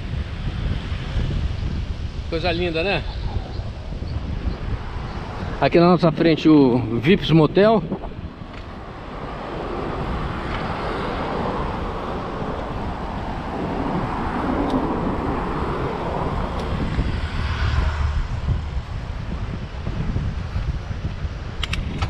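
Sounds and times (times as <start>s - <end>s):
road traffic passing: 0.0s - 22.0s
wind on microphone: 0.0s - 22.0s
low rumble: 6.3s - 22.0s.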